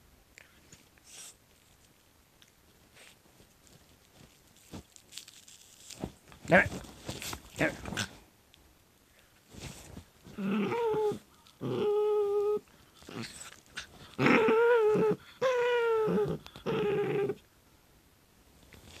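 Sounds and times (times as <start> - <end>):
puppy whining: 10.3 - 17.4.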